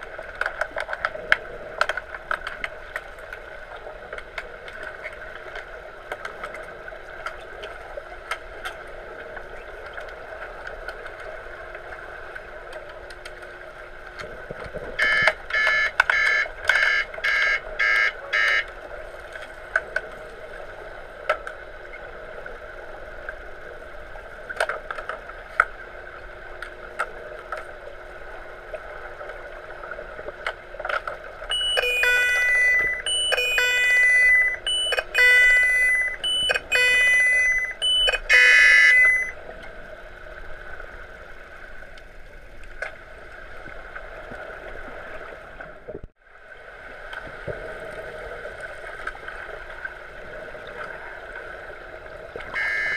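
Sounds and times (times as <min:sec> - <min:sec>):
quick underwater beeps: 0:15.0 - 0:18.7, 0:31.5 - 0:39.4, 0:52.6 - 0:52.9
tones stepping between pitches: 0:31.5 - 0:39.3
sharp clicks: 0:34.4 - 0:39.3.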